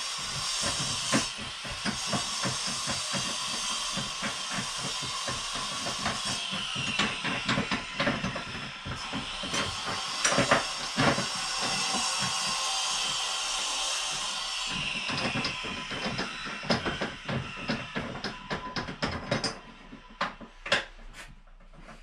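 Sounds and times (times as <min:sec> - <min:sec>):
circular saw cutting wood: 0:00.0 - 0:21.2.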